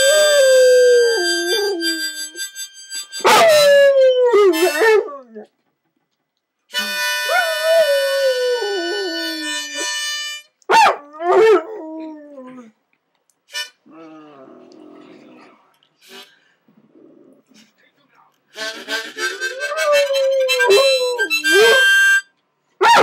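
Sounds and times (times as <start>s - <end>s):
harmonica playing: 0.0s - 5.4s, 6.7s - 10.6s, 13.5s - 13.9s, 18.5s - 22.4s
dog howling: 19.5s - 21.9s.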